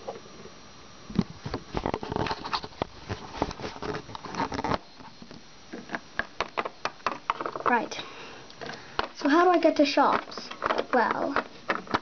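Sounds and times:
handling rustles and scuffs: 1.4s - 5.2s.

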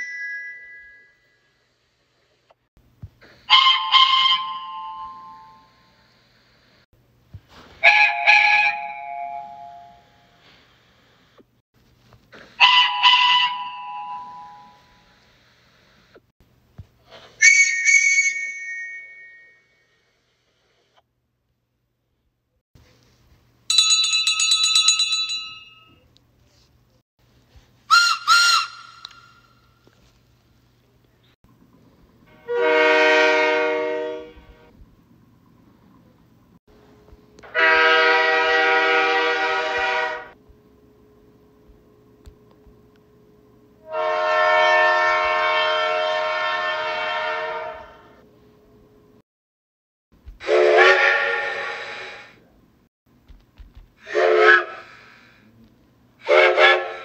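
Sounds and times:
steam locomotive whistle toots: 3.5s - 6.0s, 7.8s - 10.6s, 12.6s - 15.1s, 17.4s - 20.0s, 27.9s - 29.6s, 32.3s - 34.7s, 37.4s - 40.4s, 43.8s - 48.2s, 50.4s - 52.5s, 54.0s - 55.4s, 56.2s - 57.0s.

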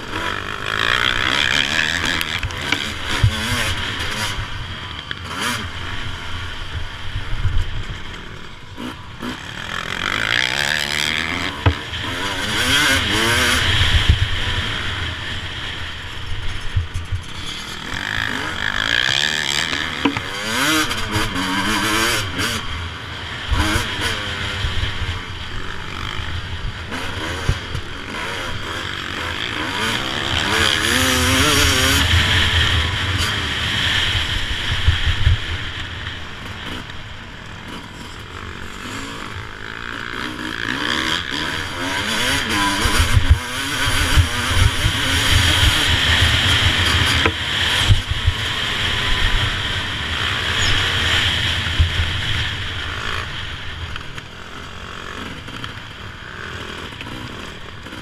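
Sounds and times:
motocross engine revving: 0.0s - 58.0s
wind and bumps on microphone: 13.0s - 15.2s, 30.0s - 36.8s, 42.8s - 54.2s.

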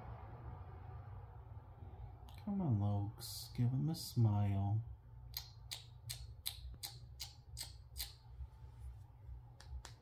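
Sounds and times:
person making mouth clicks: 5.3s - 8.2s.

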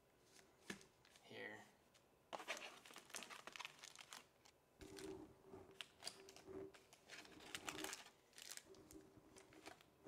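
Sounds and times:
foil packs crinkling: 2.4s - 9.9s.

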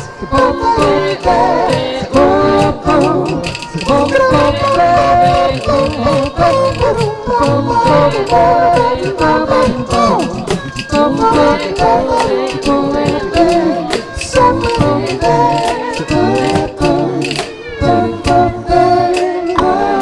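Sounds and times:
group singing a cappella: 0.0s - 20.0s.

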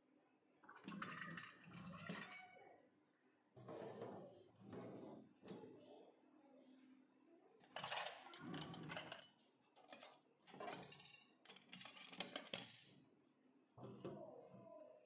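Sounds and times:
kitchenware clinking and clattering: 0.6s - 2.6s, 7.6s - 13.1s.

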